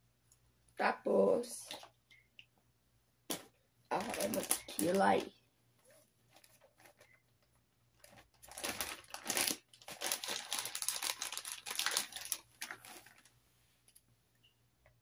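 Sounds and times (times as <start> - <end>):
crinkly rustling: 3.9 - 14.0.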